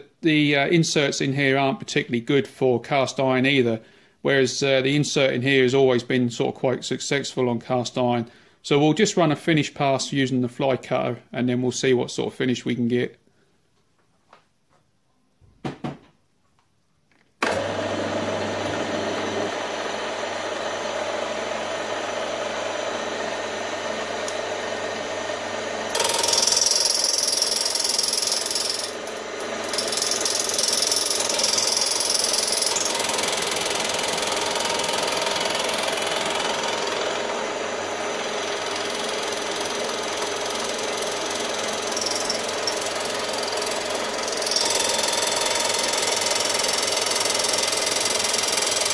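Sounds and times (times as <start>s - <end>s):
milling machine spindle hum: 17.4s - 48.9s
fly cutter cutting cast iron: 25.9s - 48.9s.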